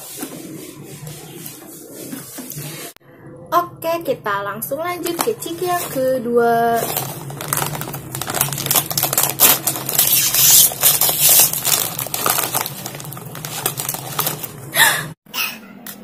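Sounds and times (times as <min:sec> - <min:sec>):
plastic snack bag crinkling: 0:06.8 - 0:14.8.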